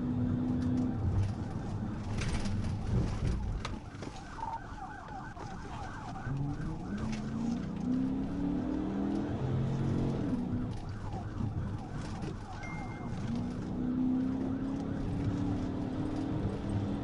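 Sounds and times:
police siren: 0.0 - 17.0
car engine accelerating: 6.2 - 17.0.

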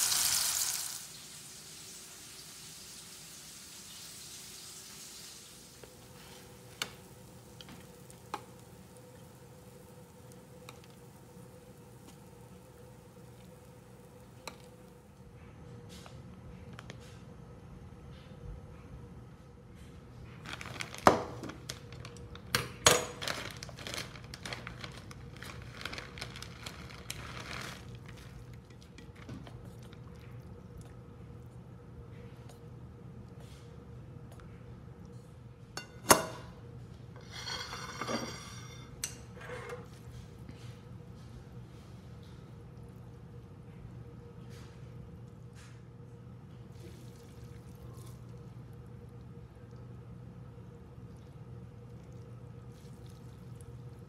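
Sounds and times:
faint steady hum: 0.0 - 54.0
plastic bag crinkling: 20.4 - 22.5, 23.1 - 29.7.

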